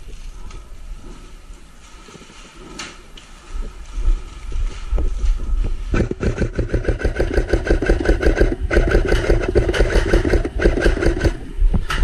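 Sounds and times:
airsoft rifle firing full auto: 0:06.2 - 0:11.4.

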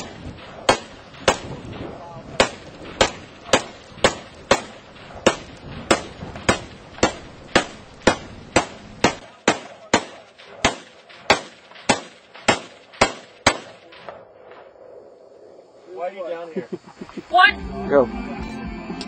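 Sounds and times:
rifle shots: 0:00.0 - 0:14.6.

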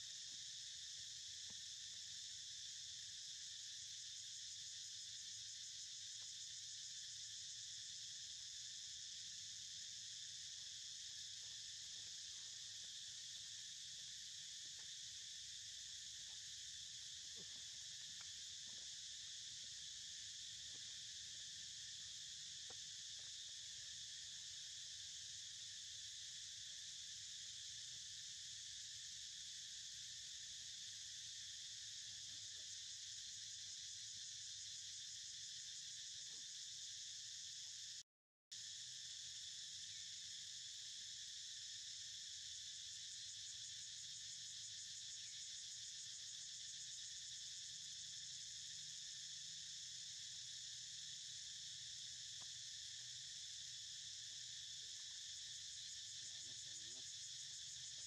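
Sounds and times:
high-pitched insect chorus: 0:00.0 - 0:58.0.

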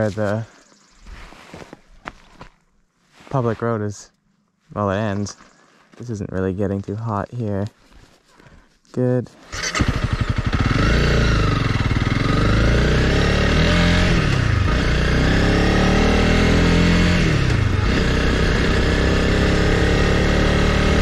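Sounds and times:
motorcycle engine accelerating: 0:09.5 - 0:21.0.

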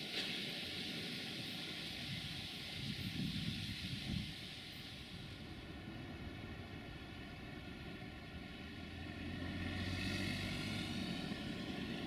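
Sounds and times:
steady high hiss: 0:00.0 - 0:12.0
wind buffeting microphone: 0:02.0 - 0:08.3.

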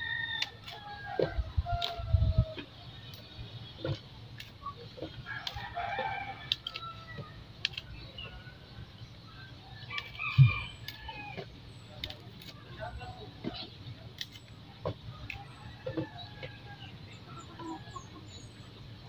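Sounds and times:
rooster crowing: 0:00.0 - 0:02.1.

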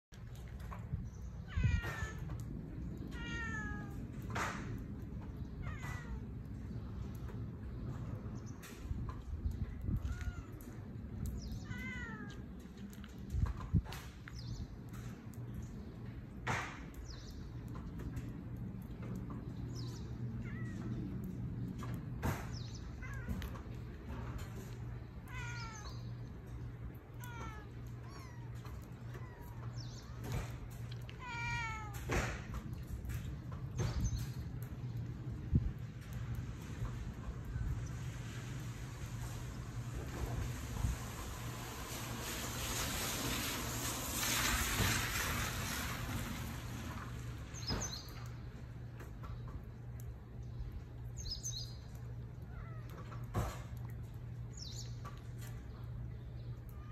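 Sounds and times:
kittens mewing: 0:25.2 - 0:26.0, 0:27.1 - 0:30.5.

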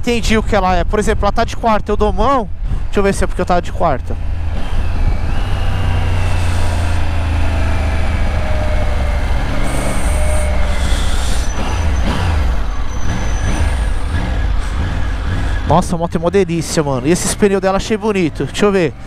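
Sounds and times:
heavy rush of wind: 0:00.0 - 0:03.3
motorcycle engine decelerating: 0:03.9 - 0:19.0.

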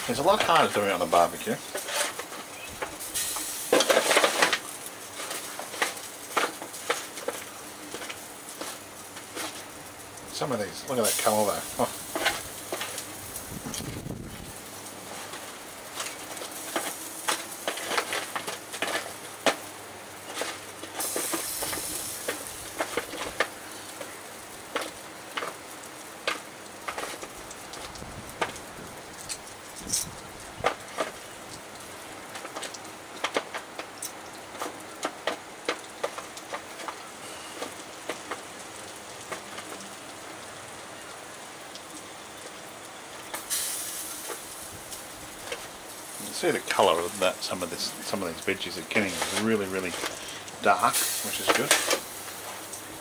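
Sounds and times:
pops and crackles: 0:00.0 - 0:10.3, 0:10.9 - 0:40.3, 0:41.0 - 0:53.0
loud hiss: 0:00.0 - 0:25.2, 0:43.3 - 0:53.0
steady sizzle: 0:00.0 - 0:53.0
metal utensil scraping foil tray: 0:00.1 - 0:09.6, 0:15.1 - 0:19.6, 0:48.6 - 0:52.1.

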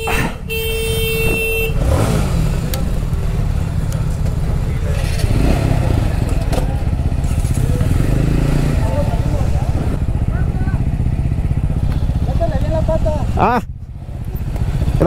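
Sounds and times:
horn steady tone: 0:00.0 - 0:02.1
motorcycle engine rumbling: 0:00.0 - 0:15.0.

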